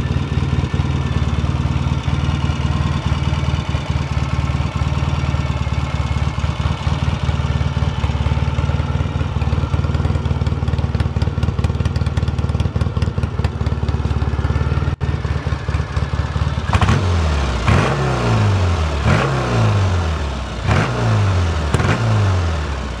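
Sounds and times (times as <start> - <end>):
motorcycle engine idling: 0.0 - 23.0
engine revving: 16.6 - 23.0.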